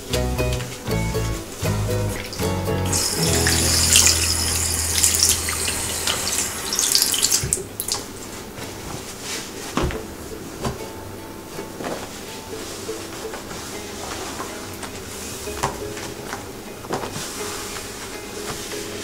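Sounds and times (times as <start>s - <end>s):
water running from tap into basin: 2.1s - 8.0s.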